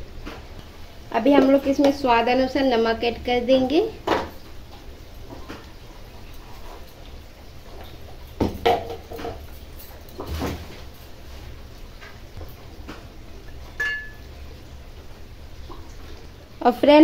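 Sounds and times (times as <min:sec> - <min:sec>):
kitchen utensils knocking and clinking: 0:01.3 - 0:02.0, 0:08.4 - 0:10.7, 0:13.8 - 0:14.2.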